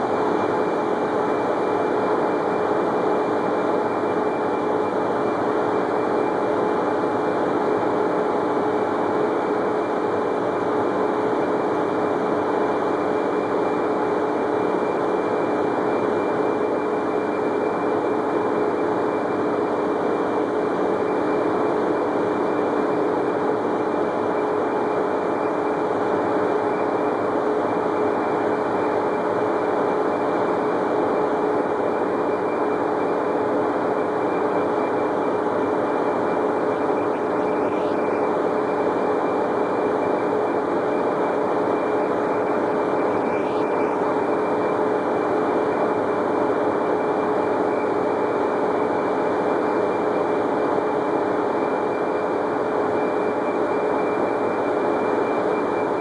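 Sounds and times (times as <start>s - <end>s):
factory machinery drone: 0.0s - 56.0s.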